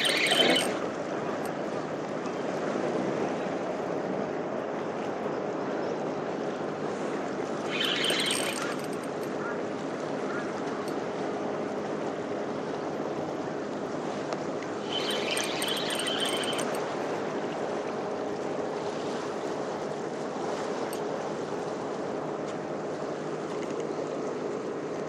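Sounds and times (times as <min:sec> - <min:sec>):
high buzzing with fine clicks: 0:00.0 - 0:00.8, 0:07.7 - 0:09.3, 0:14.8 - 0:16.8
wind: 0:00.0 - 0:25.0.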